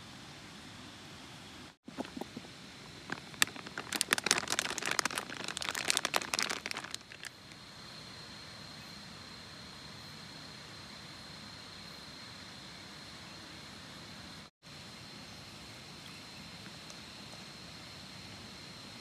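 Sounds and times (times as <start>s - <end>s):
steady hiss with high whine: 0.0s - 19.0s
plastic bag crinkling: 1.9s - 7.4s.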